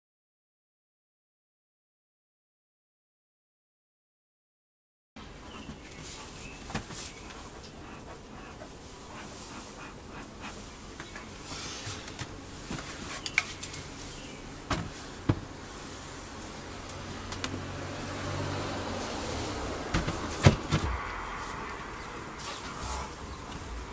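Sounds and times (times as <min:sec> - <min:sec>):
honeybees buzzing: 0:05.2 - 0:23.9.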